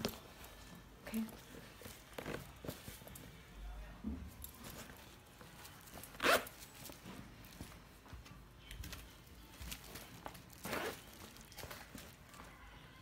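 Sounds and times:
bag handling rustle: 0.0s - 3.4s, 4.3s - 12.6s
bag zipper rasping: 5.8s - 6.7s, 10.6s - 11.2s.

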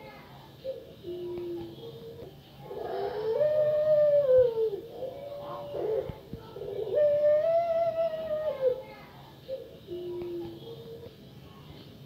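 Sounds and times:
dove cooing: 0.6s - 8.9s.

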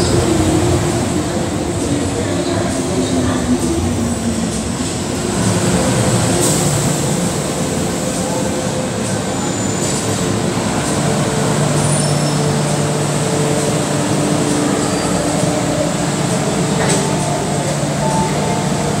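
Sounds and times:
train humming rumble: 0.0s - 19.0s
electric train braking to a stop: 4.9s - 19.0s.

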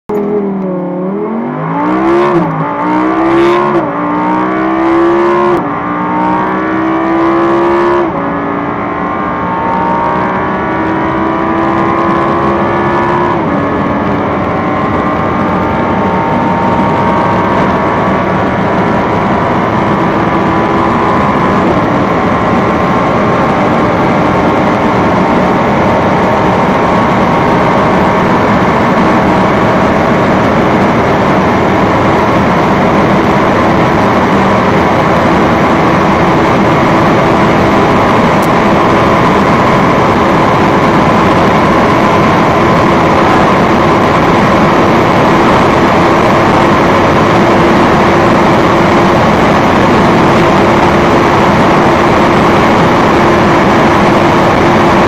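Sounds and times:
car engine revving through gears: 0.1s - 55.0s
wind and road noise: 0.1s - 55.0s.

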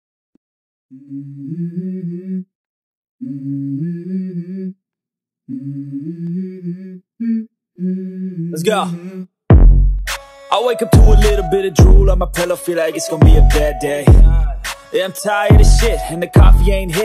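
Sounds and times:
humming vocal-like melody: 0.9s - 2.5s, 3.2s - 4.8s, 5.5s - 9.3s, 10.6s - 17.0s.

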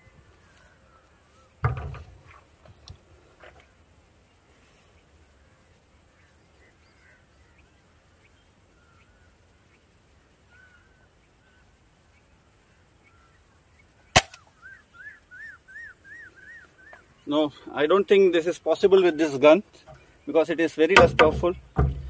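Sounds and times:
faint scattered chirps: 0.0s - 20.9s
air rifle shot: 14.2s - 14.5s.

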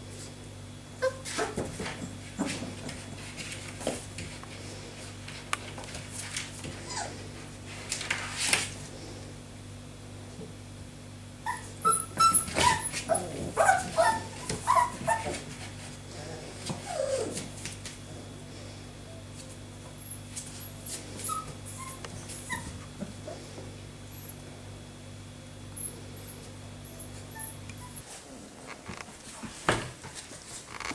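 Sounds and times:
puppies yipping and whimpering: 11.4s - 15.6s, 16.8s - 17.4s, 20.0s - 23.0s, 24.1s - 24.4s, 25.8s - 28.1s
puppy falling whine: 11.5s - 15.5s, 16.5s - 17.6s.

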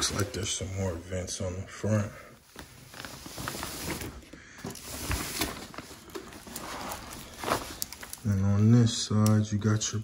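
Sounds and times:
plastic wrapping crinkling: 2.5s - 10.0s.

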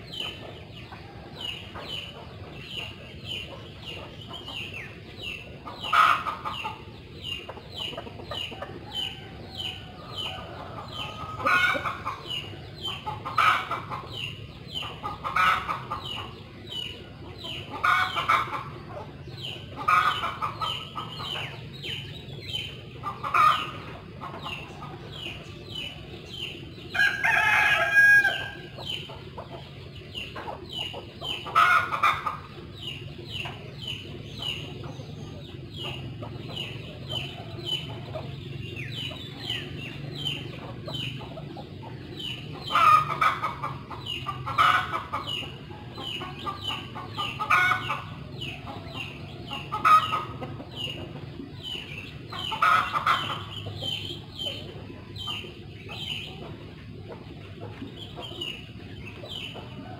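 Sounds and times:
chickens clucking: 0.0s - 59.9s
rooster crowing: 27.0s - 28.6s.

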